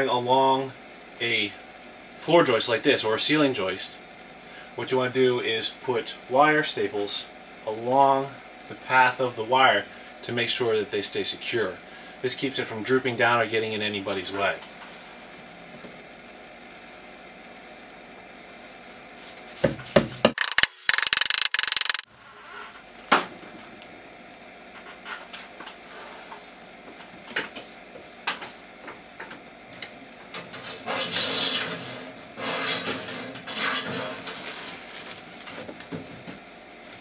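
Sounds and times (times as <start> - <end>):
stapling clicks and knocks: 20.3 - 22.0
cable scraping and rubbing: 20.4 - 22.0.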